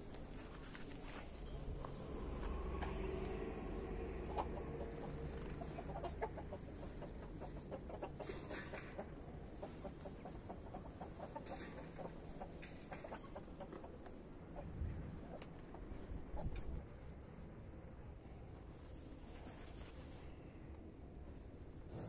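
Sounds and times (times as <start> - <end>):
chickens clucking: 4.0 - 16.6.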